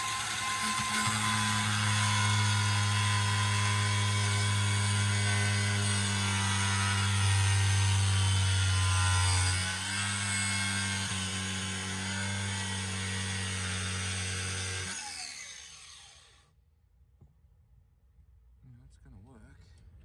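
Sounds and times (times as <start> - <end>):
grinder disc winding down: 0.0 - 8.0
angle grinder cutting plastic: 0.0 - 16.4.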